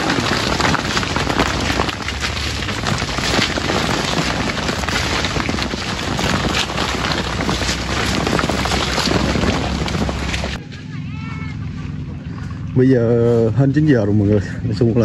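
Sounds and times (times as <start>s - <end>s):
berries pattering down: 0.0s - 10.6s
leaves rustling: 0.0s - 10.6s
twigs snapping: 0.0s - 10.6s.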